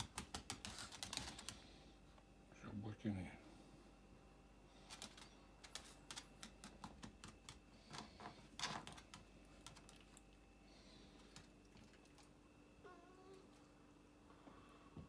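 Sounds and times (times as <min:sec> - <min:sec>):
dog claws clicking on floor: 0:00.0 - 0:01.6, 0:04.8 - 0:10.3.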